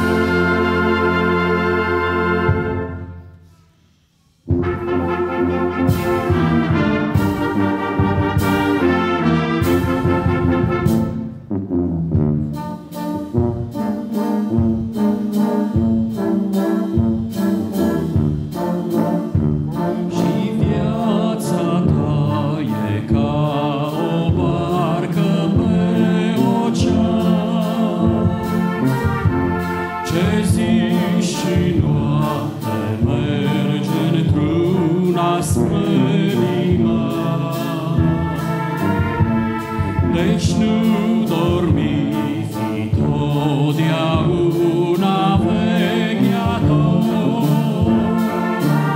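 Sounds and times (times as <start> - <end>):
brass band playing a hymn: 0.0 - 3.5, 4.4 - 48.9
bass drum: 5.8 - 12.6, 17.0 - 21.0, 24.1 - 33.4.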